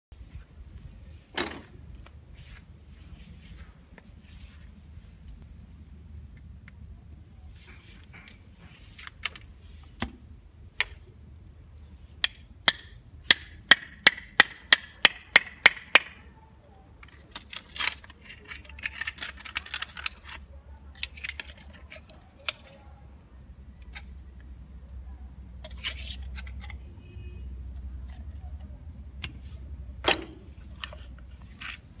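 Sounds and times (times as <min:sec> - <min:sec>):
shell scraping and crunching: 0:02.1 - 0:16.3, 0:16.9 - 0:32.0
knife cracking snail shell: 0:17.0 - 0:22.7.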